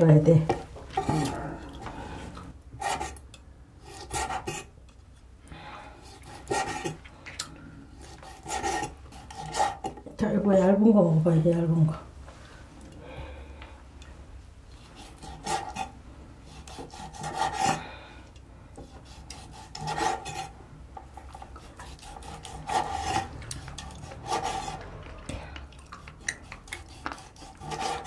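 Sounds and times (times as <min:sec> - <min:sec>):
knife sawing on wooden board: 0:02.8 - 0:03.2, 0:03.8 - 0:04.7, 0:06.1 - 0:07.0, 0:08.0 - 0:10.0, 0:14.9 - 0:17.8, 0:18.8 - 0:20.5, 0:21.6 - 0:25.0, 0:26.4 - 0:28.0.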